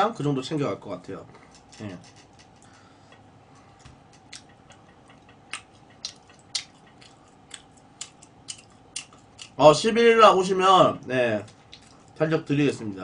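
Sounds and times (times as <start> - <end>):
chopsticks clicking while eating: 1.5 - 9.6.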